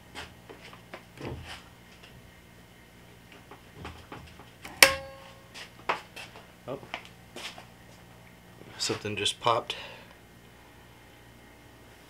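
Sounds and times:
faint steady hum: 0:00.0 - 0:12.0
sharp electrical pop with ringing: 0:04.7 - 0:05.4.

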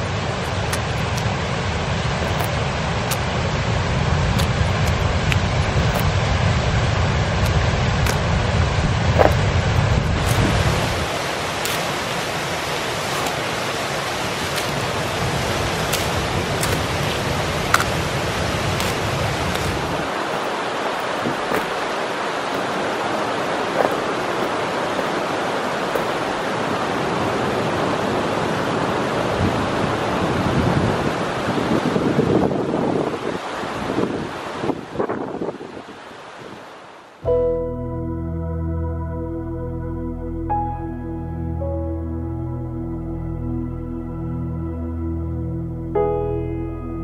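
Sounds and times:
wind buffeting microphone: 0:00.0 - 0:36.6
mountain stream rushing over boulders: 0:00.0 - 0:37.3.

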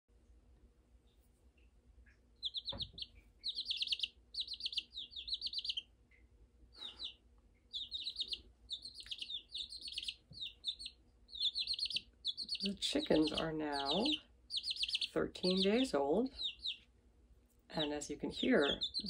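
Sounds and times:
chicks twittering: 0:02.4 - 0:05.9, 0:06.7 - 0:16.9, 0:17.8 - 0:19.0.

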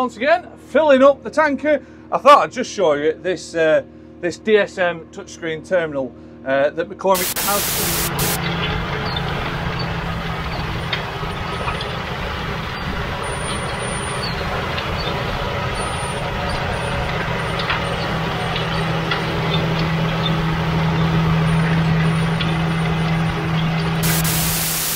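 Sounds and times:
tractor diesel engine running: 0:07.2 - 0:24.9.

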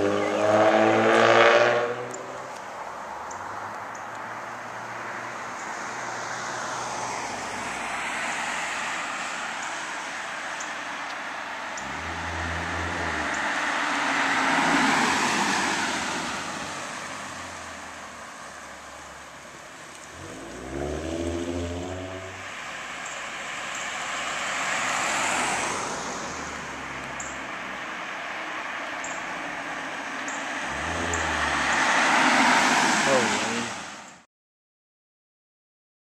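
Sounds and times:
cars passing on road: 0:00.0 - 0:34.3
car exhaust accelerating: 0:11.7 - 0:16.5, 0:18.7 - 0:25.8, 0:29.8 - 0:33.5.

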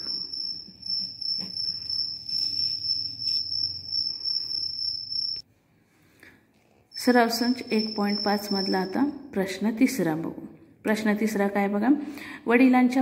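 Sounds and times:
cricket trilling: 0:00.0 - 0:05.4, 0:07.0 - 0:08.9.

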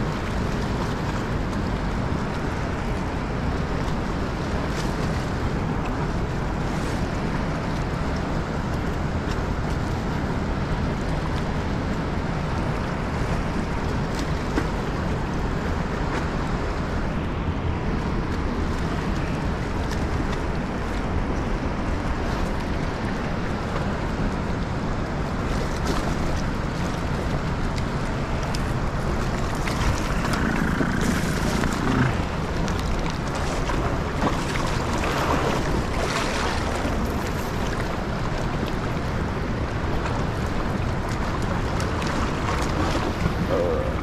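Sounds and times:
river current rushing: 0:00.0 - 0:44.0
wind buffeting microphone: 0:26.5 - 0:44.0.

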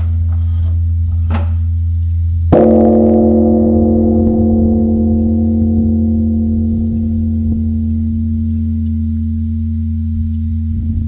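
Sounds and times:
deep bell hum: 0:00.1 - 0:11.0
temple bell ringing: 0:02.5 - 0:11.0.

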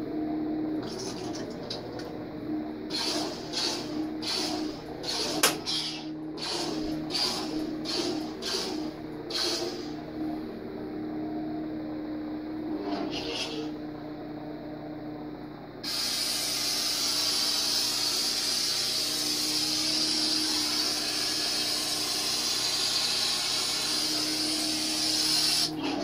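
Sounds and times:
lightsaber hum: 0:00.0 - 0:14.3.

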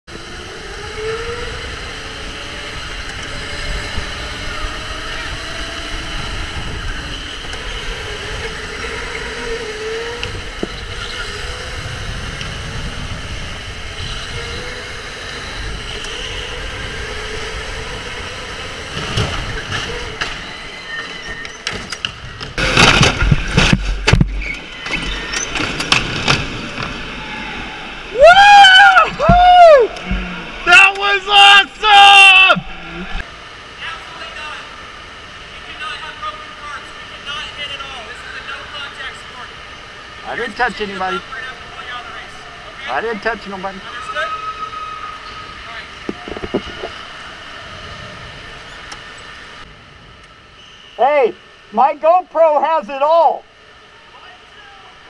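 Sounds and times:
electric go-kart motor whining: 0:00.1 - 0:31.2, 0:32.0 - 0:33.4
loud rough noise bursts: 0:22.2 - 0:28.2.

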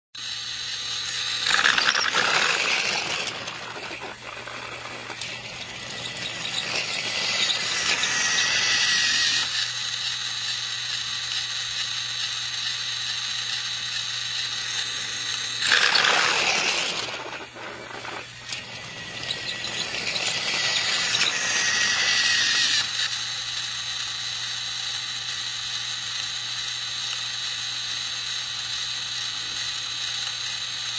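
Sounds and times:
toy train motor whirring: 0:00.2 - 0:30.9
thin high squeal: 0:00.9 - 0:09.5, 0:15.6 - 0:22.9.

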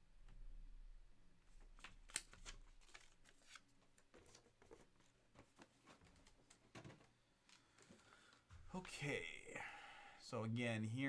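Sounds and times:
small handling clicks and rustles: 0:01.8 - 0:08.5.

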